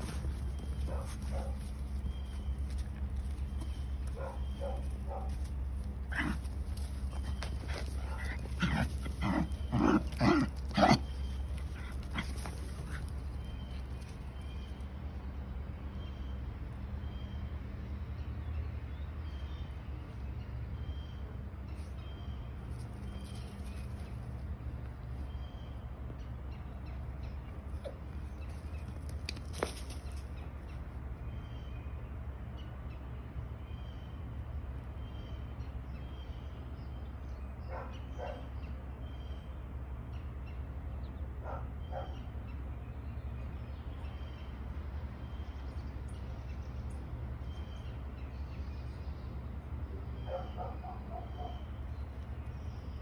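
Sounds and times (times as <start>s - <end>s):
small dog barking: 0.8s - 1.7s, 4.1s - 5.4s, 37.7s - 38.5s, 50.2s - 51.6s.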